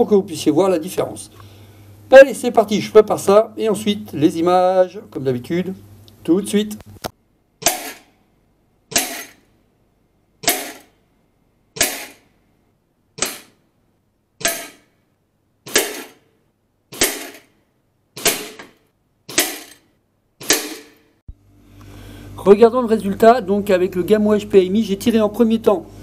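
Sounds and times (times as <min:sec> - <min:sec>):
air rifle shots hitting metal: 0:07.6 - 0:08.2, 0:08.9 - 0:09.5, 0:10.4 - 0:11.0, 0:11.8 - 0:12.3, 0:13.2 - 0:13.6, 0:14.4 - 0:15.0, 0:15.6 - 0:16.3, 0:16.9 - 0:17.6, 0:18.2 - 0:21.2.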